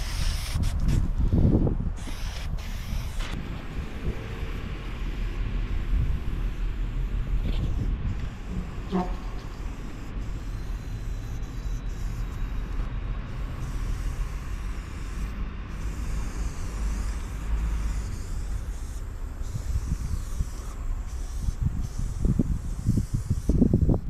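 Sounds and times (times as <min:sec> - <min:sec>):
spray paint can hissing: 0:00.0 - 0:01.2, 0:02.0 - 0:24.0
steady low rumble: 0:00.0 - 0:24.0.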